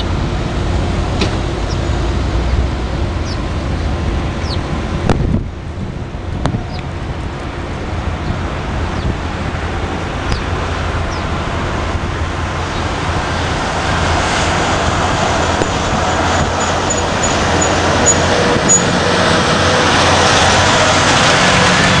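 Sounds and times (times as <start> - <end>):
heavy truck engine: 0.0 - 22.0.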